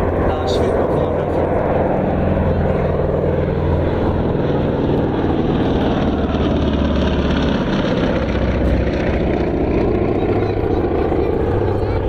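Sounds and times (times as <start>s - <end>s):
propeller airplane droning past: 0.0s - 12.0s.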